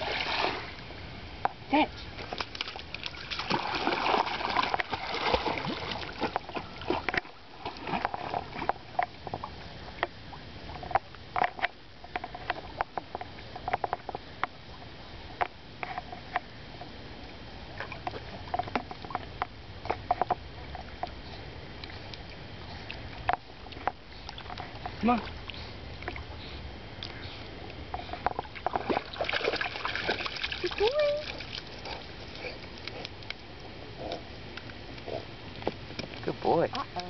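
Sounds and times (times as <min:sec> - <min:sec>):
dog splashing in water: 0:02.2 - 0:08.5.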